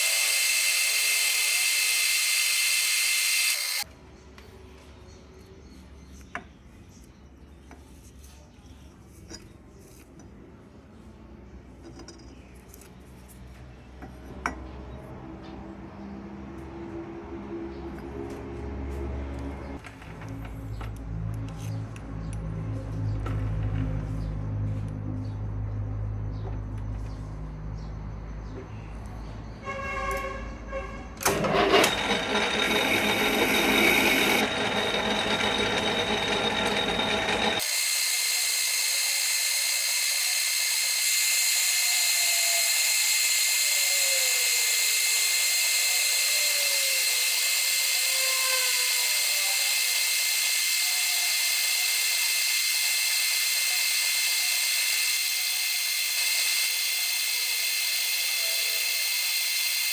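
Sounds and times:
metal lathe whining: 0.0 - 3.8, 31.2 - 59.9.

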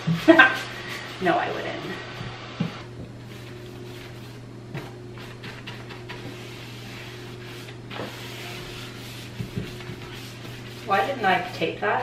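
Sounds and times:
low electrical hum: 0.0 - 12.0
paintbrush scraping on wood: 3.3 - 11.9.

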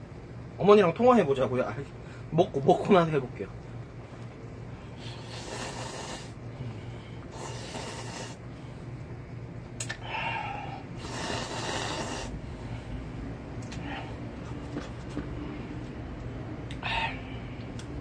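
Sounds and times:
man slurping noodles: 5.1 - 6.4, 7.3 - 8.4, 11.0 - 12.3.

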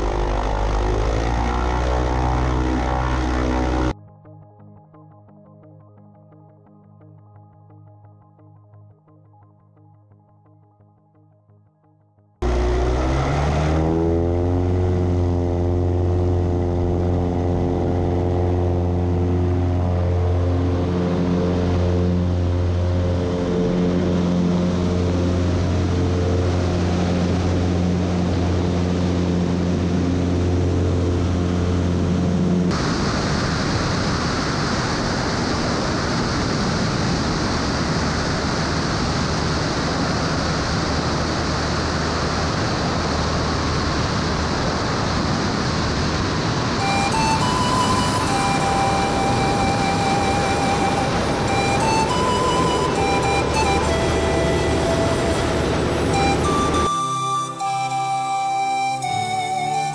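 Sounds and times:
light aircraft engine droning: 0.0 - 4.0, 12.4 - 59.9
wind rushing: 32.7 - 57.2.

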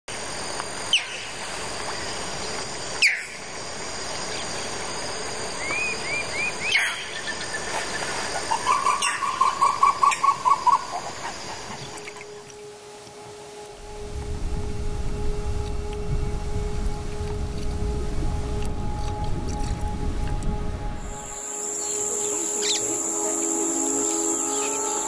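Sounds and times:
insects droning: 0.1 - 25.0
sharp descending bird calls: 21.7 - 25.0.

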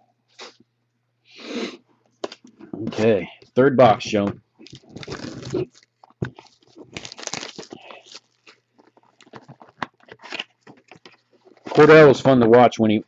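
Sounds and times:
cardboard crinkling and scraping: 4.6 - 12.4.

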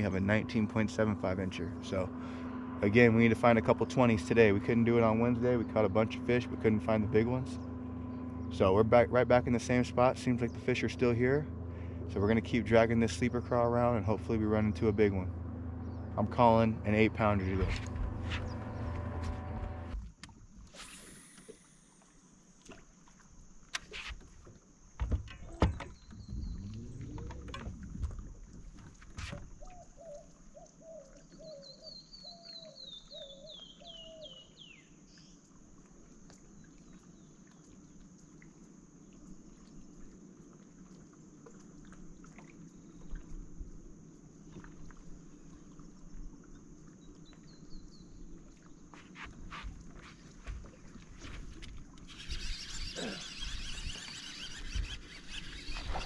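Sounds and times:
bird singing: 0.0 - 19.8, 25.0 - 27.8, 29.5 - 35.5, 46.9 - 48.4, 52.1 - 56.0
low hum: 0.0 - 22.4, 25.7 - 29.2
knocks and clunks on boat: 11.6 - 20.4, 23.7 - 29.8, 48.9 - 52.0
high-pitched buzz: 15.3 - 20.0, 52.1 - 56.0.

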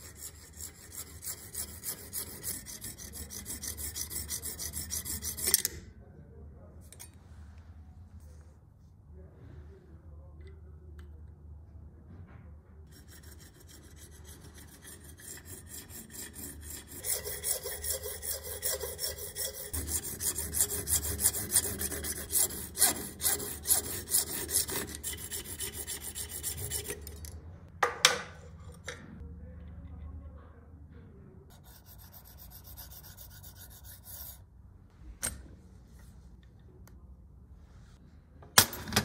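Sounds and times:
hand saw rasping on brass rod: 0.0 - 5.7, 12.9 - 27.2, 31.6 - 34.4
sharp saw scrapes: 0.0 - 5.8, 12.9 - 27.3, 31.5 - 34.4.

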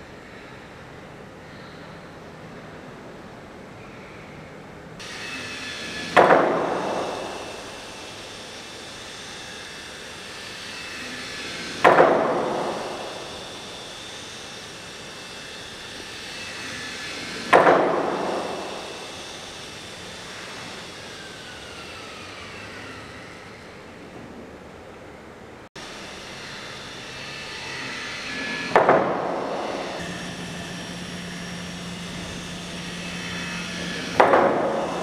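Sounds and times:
mallets striking saw blade: 5.0 - 21.8, 26.4 - 35.0.

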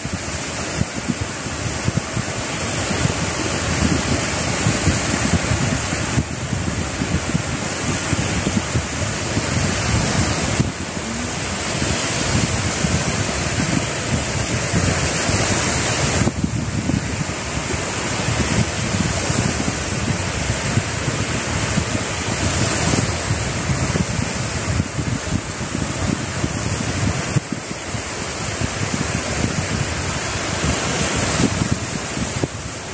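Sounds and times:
waves washing onto pebbles: 0.0 - 32.9
wind buffeting microphone: 0.0 - 32.9.

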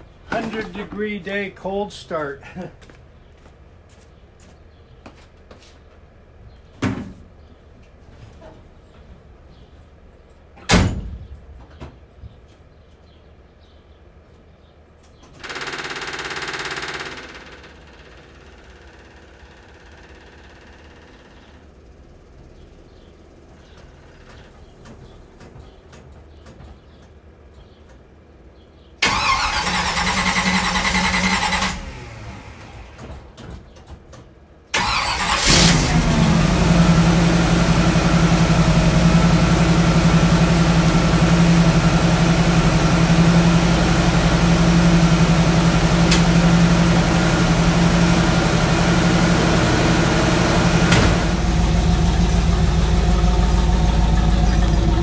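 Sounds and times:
pickup engine starting and idling: 29.0 - 33.4, 34.7 - 55.0.

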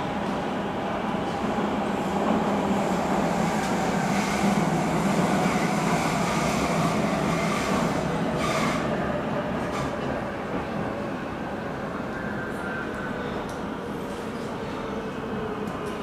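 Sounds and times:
train wheels rumbling on rail: 0.0 - 12.2.

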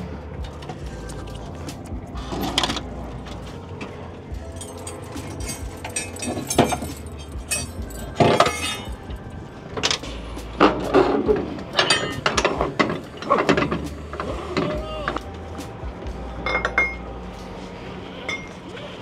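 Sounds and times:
metal clanks and rattles: 0.0 - 14.8
low steady hum: 0.0 - 19.0.

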